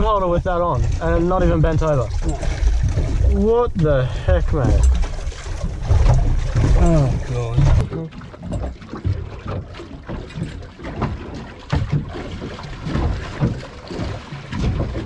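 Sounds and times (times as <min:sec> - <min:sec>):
low thumps and knocks: 0:00.0 - 0:15.0
water slapping against boat hull: 0:00.0 - 0:15.0
wind buffeting microphone: 0:00.0 - 0:15.0.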